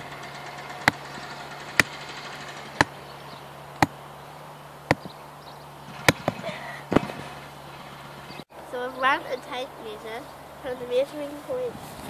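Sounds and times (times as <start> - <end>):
hammer striking wooden peg: 0.7 - 2.0, 4.9 - 5.1, 6.1 - 7.0.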